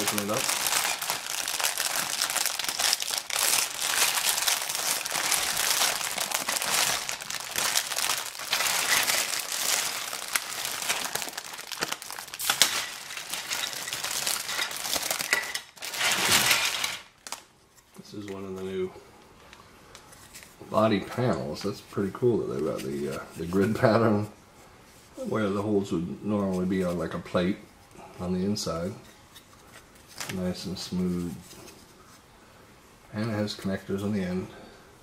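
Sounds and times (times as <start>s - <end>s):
plastic bag crinkling: 0.0s - 17.5s.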